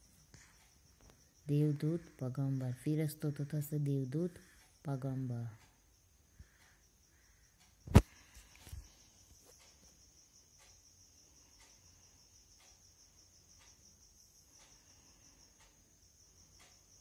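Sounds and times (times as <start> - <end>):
high-pitched insect trill: 0.0 - 17.0
faint tick: 11.5 - 11.9, 12.5 - 13.0, 13.6 - 15.8, 16.6 - 16.9.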